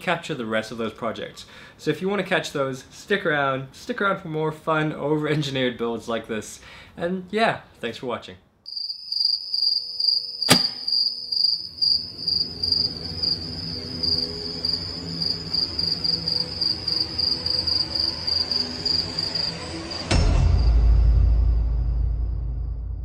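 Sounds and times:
cricket chirping: 8.7 - 20.7
sharp click: 10.4 - 11.0.

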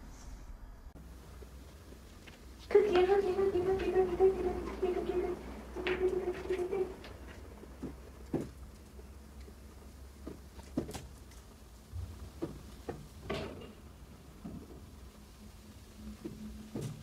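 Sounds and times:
dog paws tapping on hard floor: 1.9 - 11.4.

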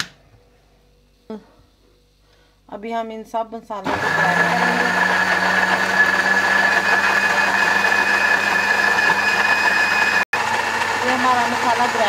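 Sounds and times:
blender motor grinding paste: 3.9 - 12.0.

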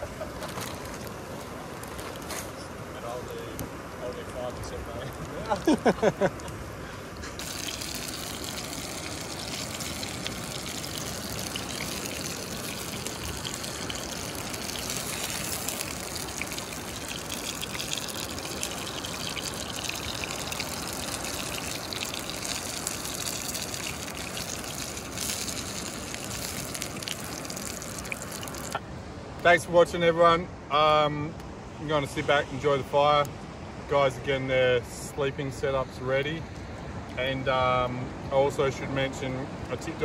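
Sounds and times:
fish frying in oil: 7.4 - 28.8.

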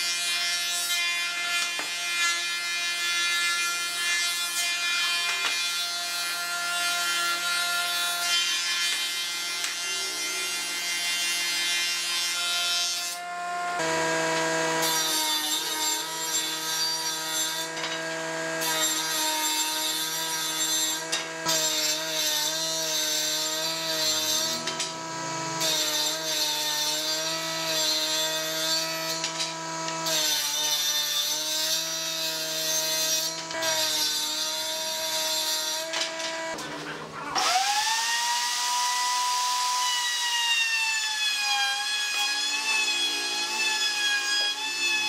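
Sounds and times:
saw blade rasping through wood: 0.0 - 45.0
table saw motor whine: 13.1 - 20.3, 20.9 - 30.8, 33.0 - 45.0.

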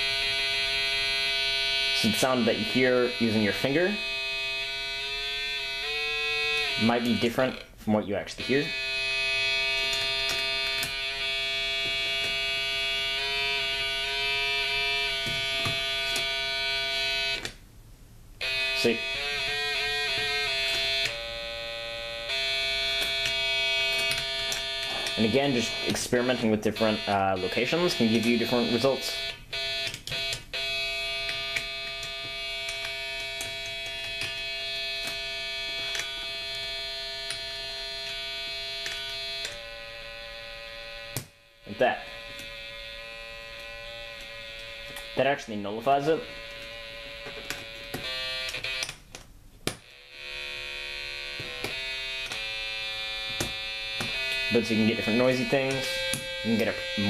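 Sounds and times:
buzzy electronic tone: 0.0 - 17.5, 18.4 - 48.9, 49.8 - 57.0
circuit contacts clicking: 5.8 - 7.6, 8.4 - 17.6, 18.4 - 21.3, 22.2 - 39.7, 42.2 - 42.9, 43.5 - 45.3, 46.2 - 57.0.

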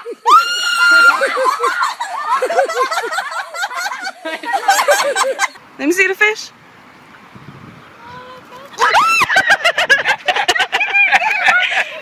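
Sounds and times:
girl screaming: 0.0 - 1.4, 8.0 - 9.3
girl squealing laughs: 0.0 - 5.6, 8.0 - 12.0.

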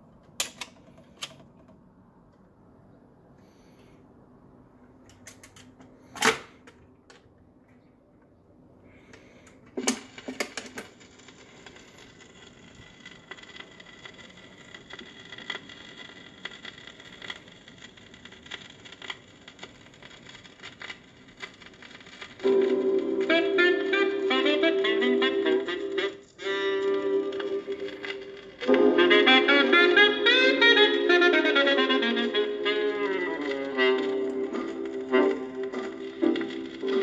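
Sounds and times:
record surface hiss and crackle: 0.0 - 37.0
saxophone music: 22.4 - 37.0.

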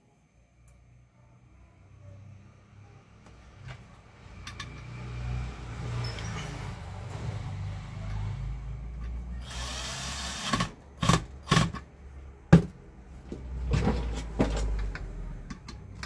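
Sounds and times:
rustling of tool and parts: 12.6 - 16.0.

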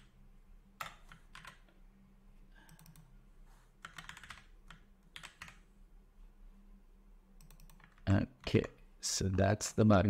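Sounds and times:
low steady hum: 0.0 - 10.0
keyboard typing: 0.8 - 1.7, 2.6 - 3.1, 3.8 - 5.6, 7.4 - 8.1.

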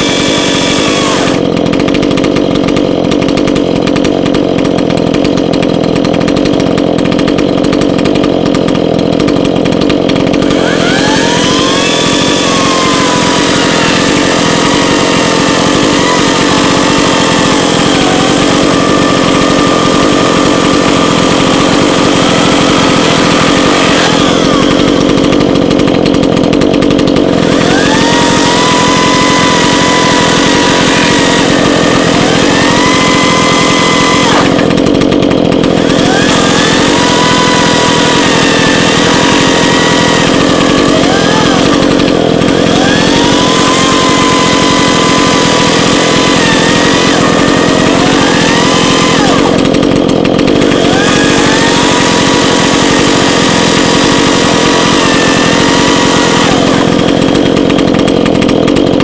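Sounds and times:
chainsaw cutting into log: 0.0 - 59.0
chainsaw engine idling and revving: 0.0 - 59.0.

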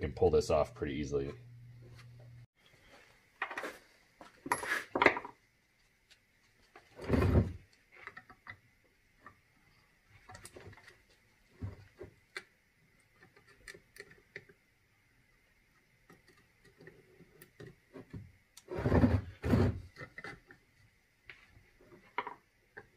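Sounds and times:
low hum: 0.0 - 2.5.

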